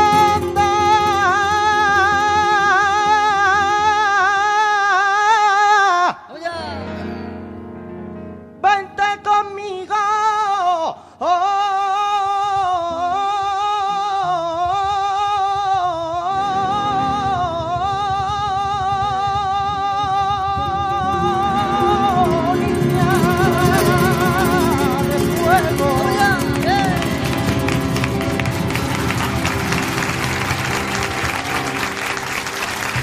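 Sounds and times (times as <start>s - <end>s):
guitar strumming: 0.0s - 4.2s, 6.6s - 9.4s, 13.9s - 33.0s
man singing with vibrato: 0.0s - 7.5s, 8.6s - 31.3s.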